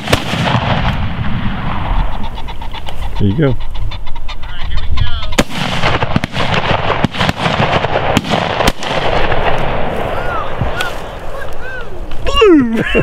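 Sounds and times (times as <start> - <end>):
shotgun shots: 0.0 - 2.2, 5.3 - 11.3.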